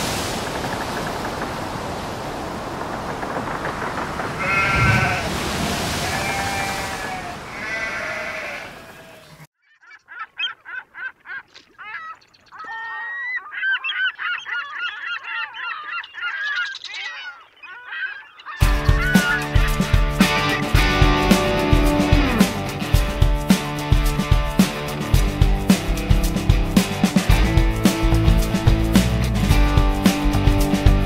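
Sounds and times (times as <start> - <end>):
surf: 0.0 - 9.5, 18.6 - 31.0
wind: 0.0 - 31.0
drawn-out animal calls: 2.5 - 20.8
flock of birds calling: 3.0 - 20.8
music: 18.6 - 31.0.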